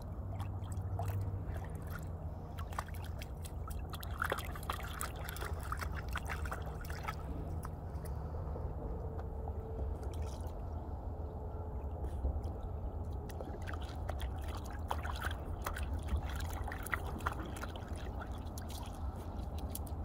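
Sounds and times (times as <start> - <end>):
dog splashing in shallow water: 0.0 - 7.8, 13.1 - 20.0
steady low rumble: 0.0 - 20.0.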